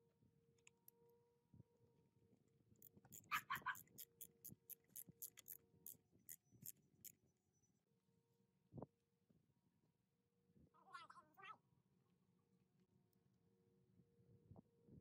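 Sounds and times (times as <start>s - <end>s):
screwdriver ratchet clicks: 2.8s - 5.6s.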